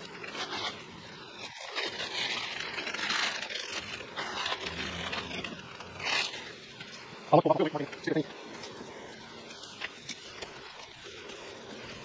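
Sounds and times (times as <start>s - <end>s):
masking tape peeling: 0.0s - 7.6s
paper and plastic sheeting crinkling: 0.0s - 12.0s.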